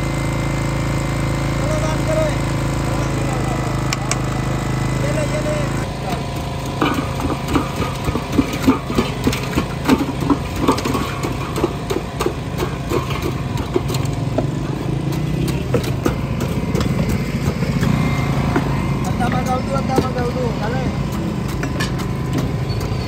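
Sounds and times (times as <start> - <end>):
steady engine hum: 0.0 - 23.0
ice pick chipping ice: 5.3 - 23.0.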